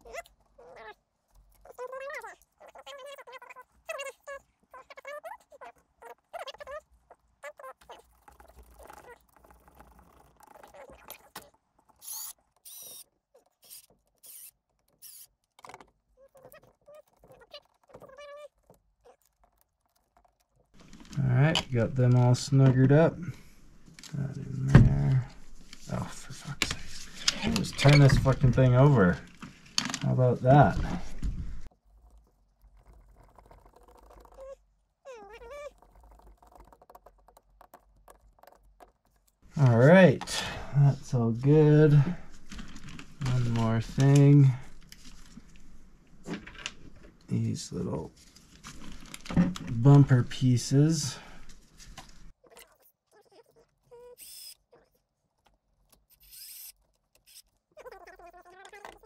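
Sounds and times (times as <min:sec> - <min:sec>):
cordless drill whining: 0:12.0 - 0:13.0.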